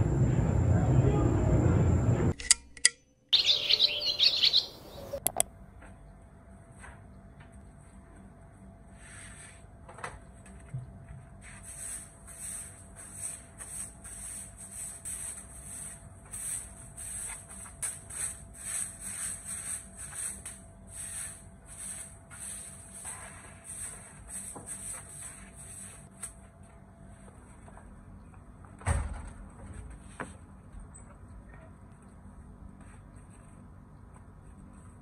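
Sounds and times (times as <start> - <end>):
broom sweeping concrete: 8.9 - 9.7, 11.4 - 26.5.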